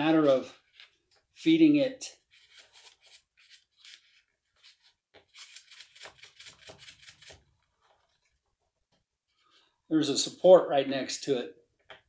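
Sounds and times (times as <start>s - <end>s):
wire scratching in hole: 2.4s - 7.5s.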